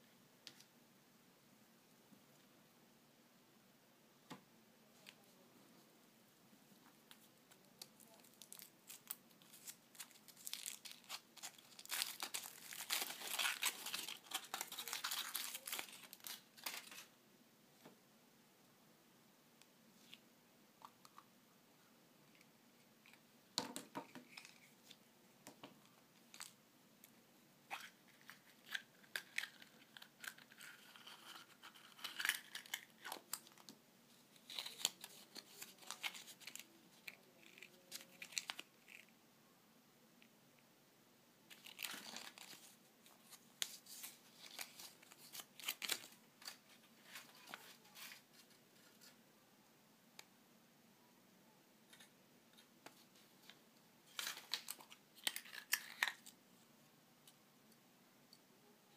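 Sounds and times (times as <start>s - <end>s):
paper crinkling: 7.1s - 17.1s, 27.7s - 33.7s, 34.3s - 39.1s, 41.5s - 49.2s, 52.6s - 56.4s
chocolate egg cracking: 54.2s - 56.3s.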